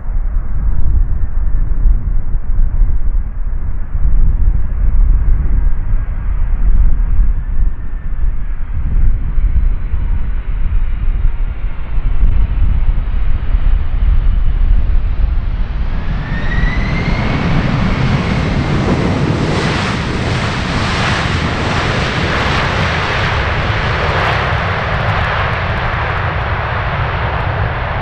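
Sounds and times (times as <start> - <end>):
jet engines rumbling: 0.0 - 28.0
wide rushing roar: 12.8 - 28.0
rising jet whine: 13.2 - 28.0.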